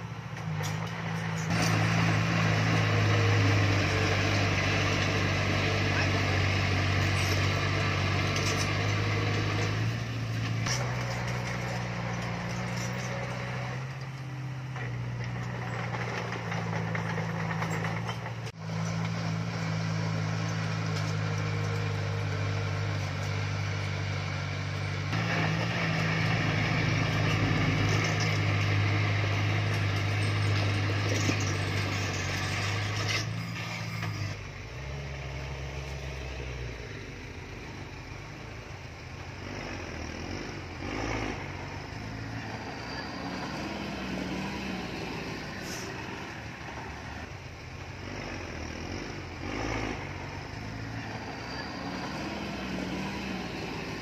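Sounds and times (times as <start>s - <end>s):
diesel machinery engines running: 0.0s - 54.0s.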